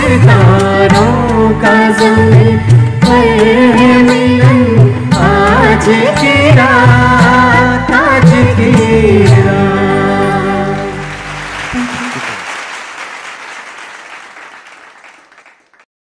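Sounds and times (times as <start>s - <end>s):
singers with live band: 0.0s - 12.4s
audience applause: 10.7s - 15.9s.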